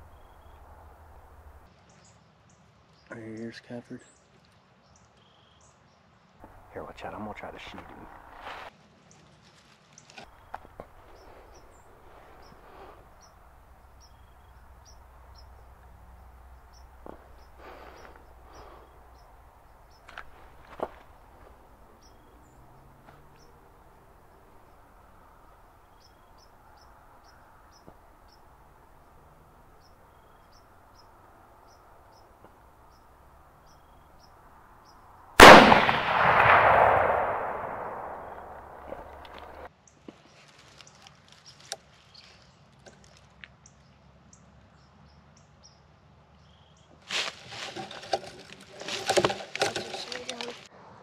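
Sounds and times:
rifle shot: 35.4s - 39.5s.

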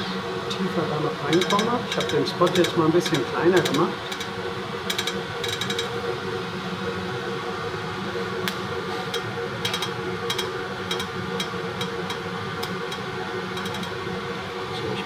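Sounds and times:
machine hum: 0.0s - 15.0s
laser welder ticks: 1.3s - 5.9s, 8.4s - 14.0s.

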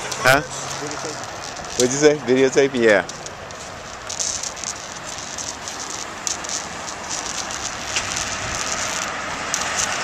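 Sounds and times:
street traffic hiss: 0.0s - 10.0s.

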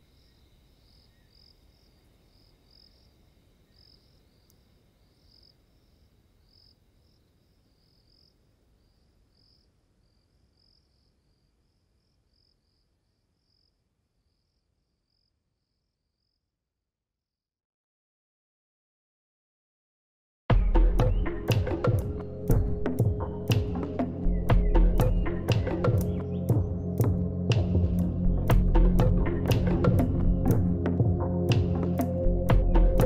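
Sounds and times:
crickets chirping: 0.0s - 16.5s.

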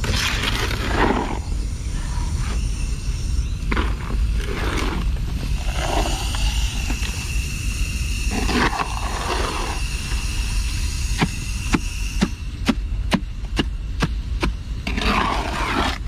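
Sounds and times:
hoe scraping wet concrete: 0.0s - 1.4s, 3.7s - 6.4s, 14.9s - 16.0s
steady low rumble: 0.0s - 16.0s.

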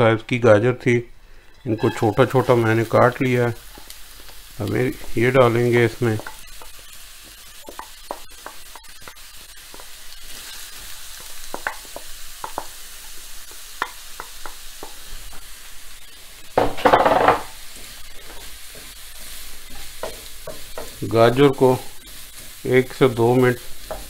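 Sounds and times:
carrots sizzling in oil: 1.3s - 24.0s
wooden spatula scraping pan: 1.6s - 11.9s.

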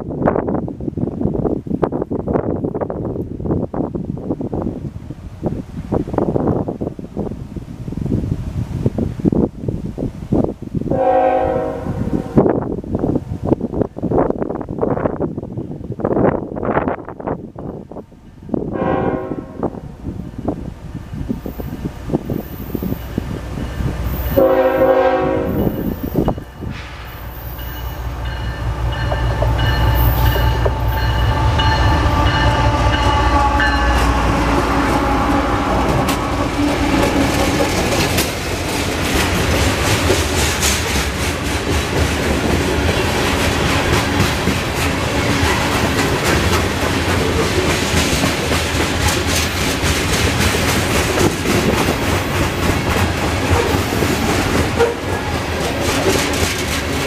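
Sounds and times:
diesel locomotives rumbling with whine: 0.0s - 57.0s
train horn blast: 10.9s - 12.5s, 18.7s - 20.0s, 24.2s - 26.0s, 28.0s - 37.4s, 54.8s - 55.4s
train wheels clickety-clack: 25.5s - 33.2s, 35.8s - 57.0s.

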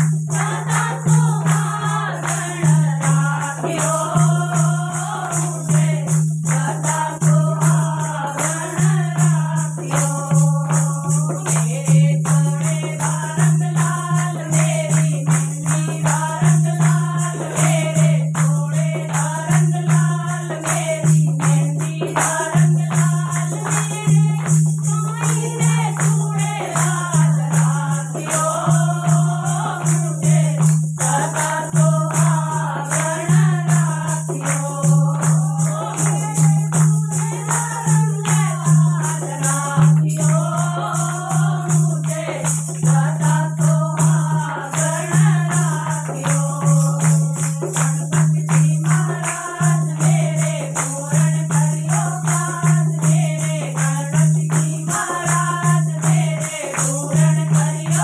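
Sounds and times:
hand drum beat: 0.0s - 58.0s
hand-clapping: 0.0s - 58.0s
women singing together: 0.0s - 58.0s.

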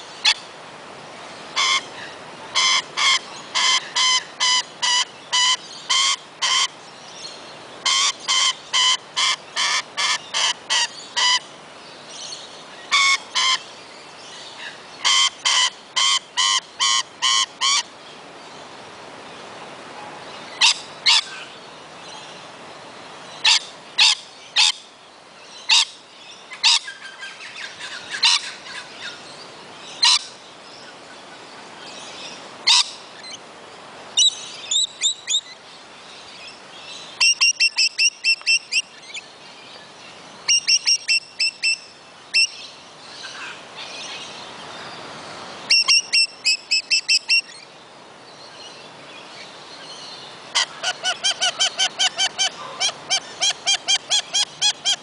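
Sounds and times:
lorikeets screeching and chattering: 1.6s - 2.0s, 2.6s - 6.8s, 7.8s - 11.5s, 15.0s - 17.9s, 30.0s - 30.3s, 32.7s - 33.4s, 45.7s - 47.7s, 50.5s - 55.0s.

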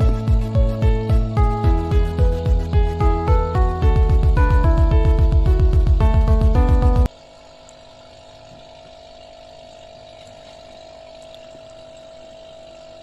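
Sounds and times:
background music: 0.0s - 7.1s
steady hum with constant tone: 0.0s - 13.0s.

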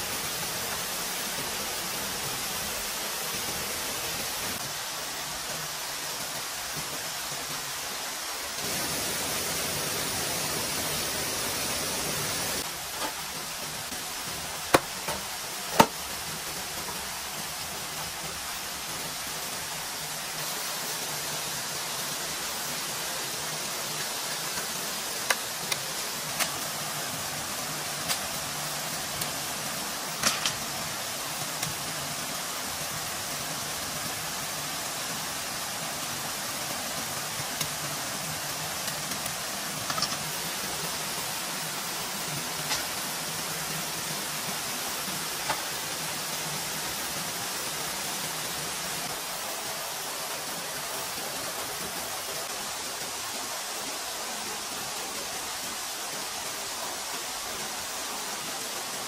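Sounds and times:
water hissing: 7.9s - 59.0s
sharp clicks and knocks: 38.8s - 40.3s.

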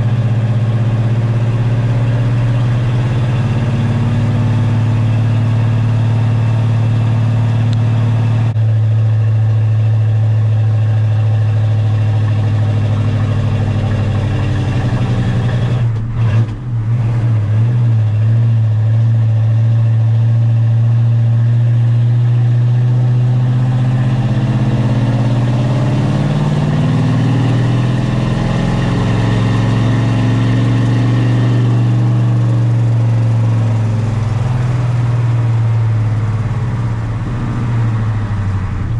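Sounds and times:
truck engine running: 0.0s - 38.9s.

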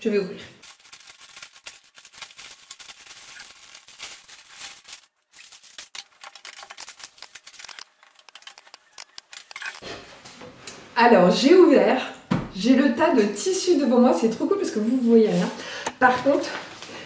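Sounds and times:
packaging crackling and rustling: 0.6s - 9.8s.

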